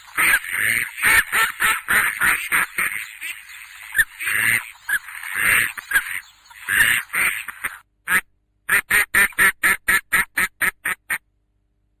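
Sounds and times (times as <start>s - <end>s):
ducklings quacking: 0.0s - 11.2s.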